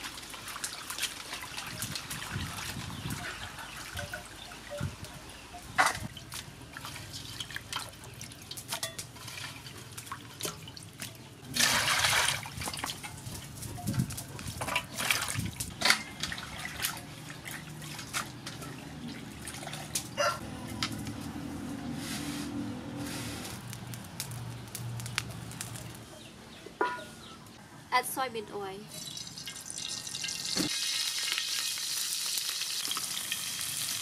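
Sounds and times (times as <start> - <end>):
water splashing and dripping: 0.0 - 5.1, 5.7 - 20.2.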